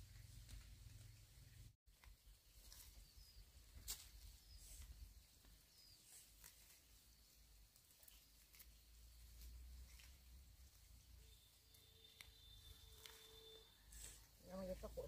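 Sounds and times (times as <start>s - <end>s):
leafy plants rustling and snapping: 1.9s - 15.0s
faint high chirps: 10.8s - 15.0s.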